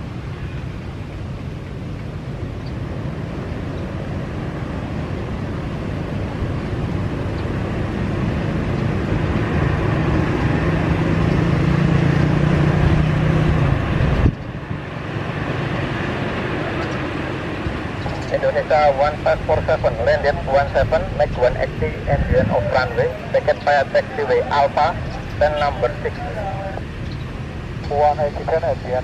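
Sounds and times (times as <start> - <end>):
jet engines rumbling: 0.0 - 29.0.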